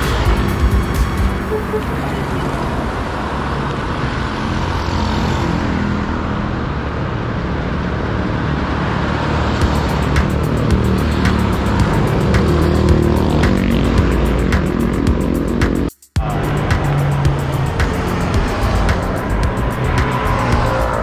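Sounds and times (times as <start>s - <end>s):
road traffic passing: 0.0s - 21.0s
van passing: 0.0s - 21.0s.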